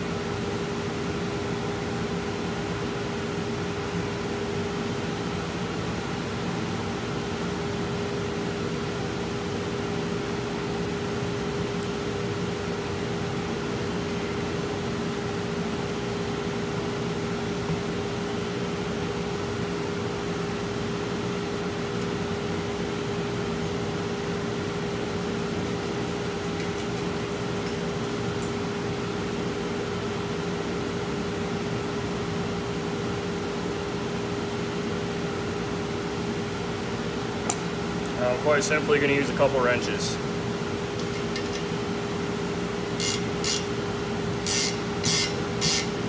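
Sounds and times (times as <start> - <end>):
steady machine hum: 0.0 - 46.0.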